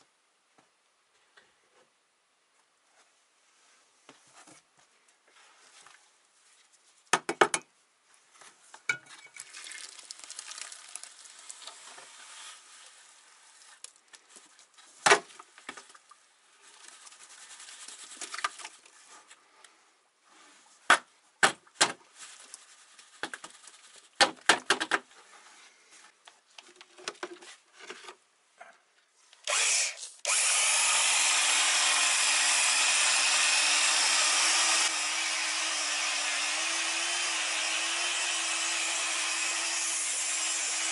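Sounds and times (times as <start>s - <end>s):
electric drill mixing mortar: 29.5s - 40.9s.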